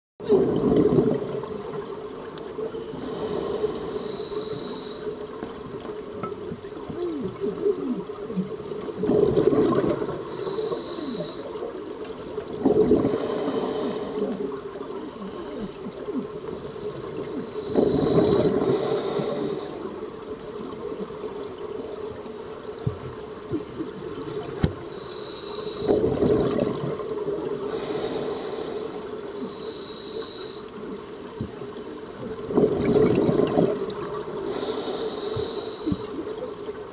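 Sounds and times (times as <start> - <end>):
burbling exhaled bubbles: 0.2 - 1.9, 7.0 - 10.3, 12.5 - 13.3, 25.9 - 27.7, 32.3 - 34.5
hissing regulator inhale: 2.8 - 5.7, 10.2 - 11.6, 13.0 - 21.5, 24.9 - 26.2, 27.1 - 31.9, 34.4 - 36.3.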